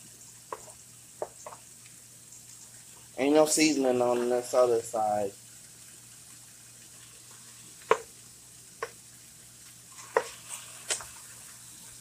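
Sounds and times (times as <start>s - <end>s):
chicken sizzling in a pan: 0.0s - 12.0s
sharp taps against pan: 7.9s - 8.1s.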